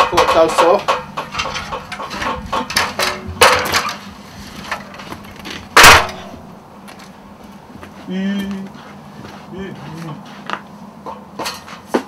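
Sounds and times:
metal ladder knocking and clanking: 0:00.0 - 0:06.4, 0:11.1 - 0:12.0.

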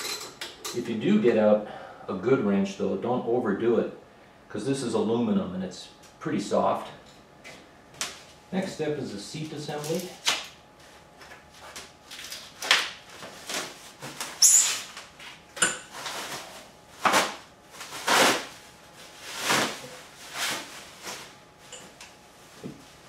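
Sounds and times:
plastic wrap crinkling: 0:11.6 - 0:14.4.

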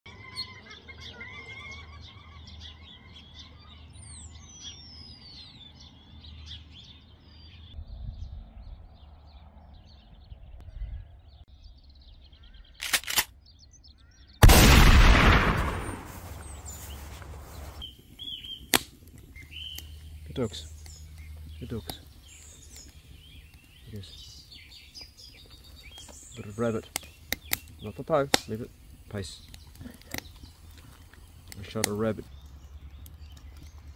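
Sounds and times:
birds singing and chirping: 0:00.1 - 0:33.9
sharp clicks: 0:12.8 - 0:13.3, 0:14.4 - 0:17.6, 0:18.2 - 0:33.9
rifle shot: 0:14.4 - 0:16.9.

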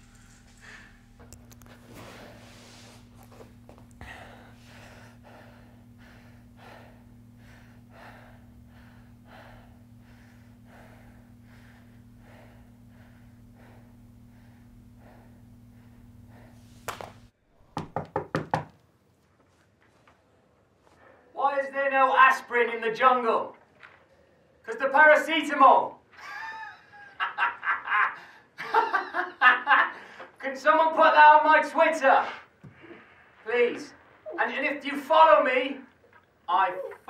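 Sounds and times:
man breathing heavily: 0:00.0 - 0:17.3
electrical hum: 0:00.0 - 0:18.0.

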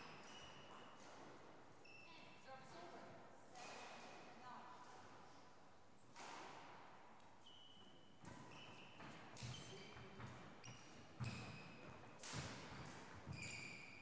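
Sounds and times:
court shoes squeaking: 0:00.0 - 0:02.4, 0:07.4 - 0:14.0
racket hitting shuttlecock: 0:06.1 - 0:07.0, 0:08.2 - 0:10.4, 0:11.2 - 0:13.6.

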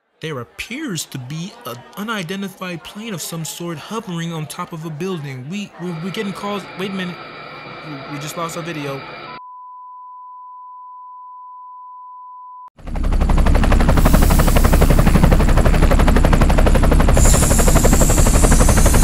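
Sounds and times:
engine hiss: 0:13.9 - 0:15.4, 0:17.0 - 0:19.0.

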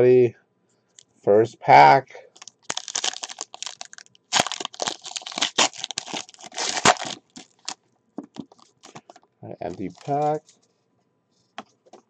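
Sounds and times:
foil wrapper crinkling: 0:02.3 - 0:07.8, 0:08.4 - 0:10.4.

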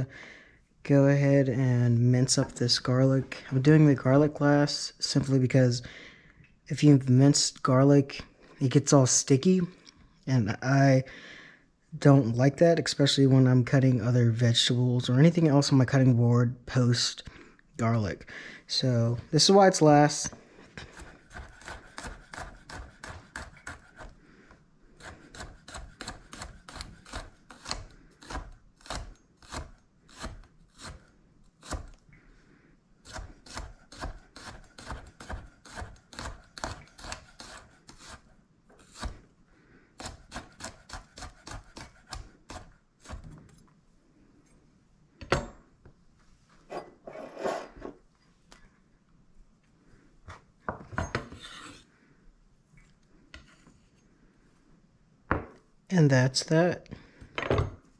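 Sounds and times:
knife chopping on wooden board: 0:20.9 - 0:24.1
knocks and scrapes: 0:46.6 - 0:48.0, 0:50.3 - 0:51.8.

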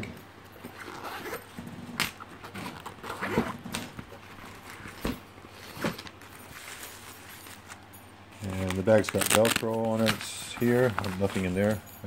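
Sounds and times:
zipper being pulled open: 0:00.6 - 0:05.0.

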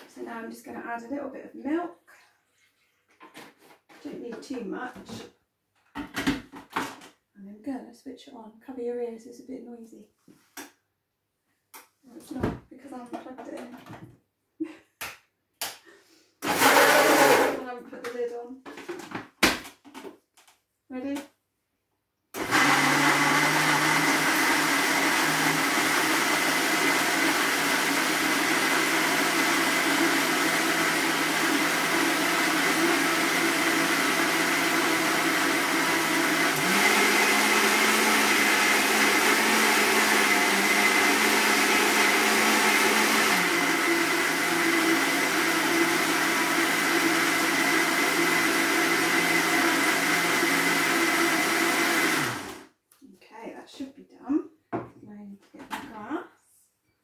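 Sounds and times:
blender running: 0:16.4 - 0:17.6, 0:22.4 - 0:52.7.

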